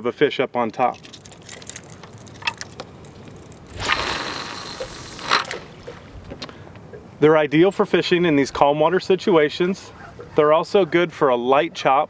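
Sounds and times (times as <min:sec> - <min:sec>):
water splashing: 0:00.9 - 0:06.2.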